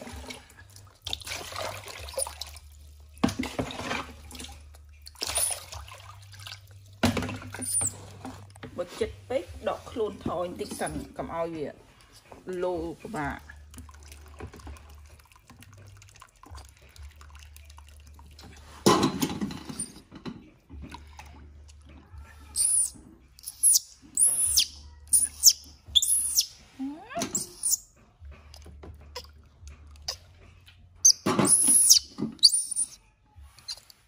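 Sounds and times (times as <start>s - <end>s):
water splashing: 0.0s - 8.5s
baby monkey shrill cries: 22.5s - 26.5s, 27.2s - 27.8s, 31.0s - 33.0s.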